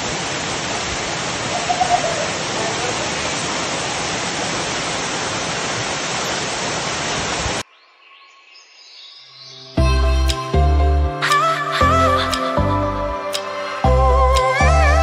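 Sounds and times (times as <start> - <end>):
waterfall roaring: 0.0 - 7.6.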